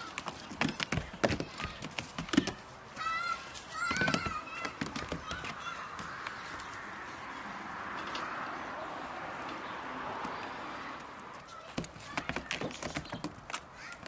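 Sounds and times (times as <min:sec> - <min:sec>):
hooves knocking on wood: 0:00.0 - 0:06.7, 0:11.3 - 0:14.0.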